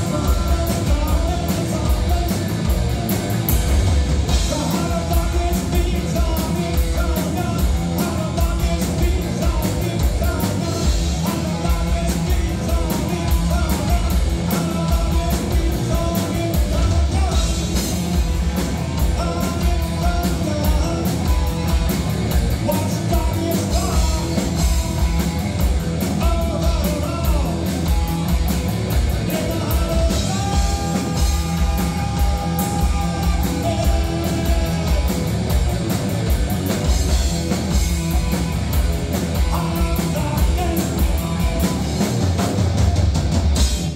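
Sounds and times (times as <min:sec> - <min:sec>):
bass guitar: 0:00.0 - 0:43.9
distorted electric guitar: 0:00.0 - 0:43.9
drum kit: 0:00.0 - 0:43.9
person singing: 0:29.2 - 0:35.5, 0:39.4 - 0:42.0.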